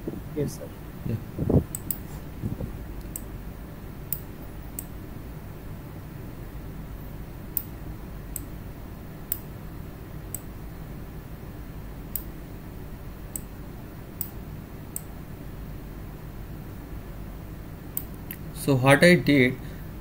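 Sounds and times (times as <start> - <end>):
steady low hum: 0.0 - 20.0
computer mouse clicking: 1.7 - 2.0.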